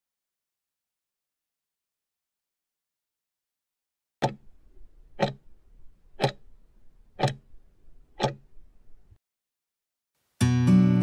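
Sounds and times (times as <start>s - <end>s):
clock ticking: 4.2s - 9.0s
music: 10.4s - 11.0s.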